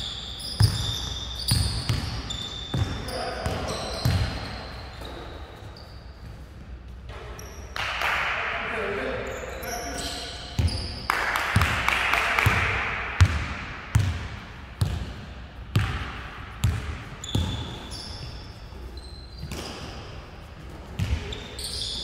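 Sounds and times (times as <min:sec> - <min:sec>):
basketball dribbling on hall floor: 0:00.0 - 0:05.3, 0:10.0 - 0:22.0
sneaker squeaks: 0:00.0 - 0:07.8, 0:09.2 - 0:11.1, 0:16.6 - 0:22.0.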